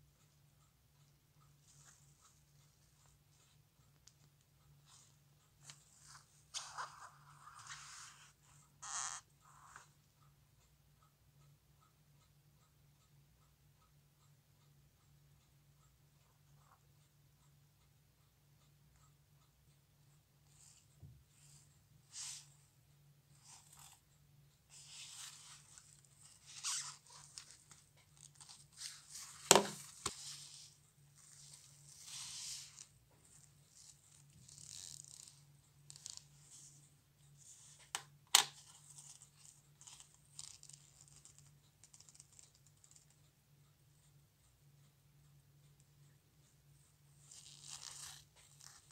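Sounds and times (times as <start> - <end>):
gloves rustling and scraping: 24.7 - 36.8, 47.2 - 48.9.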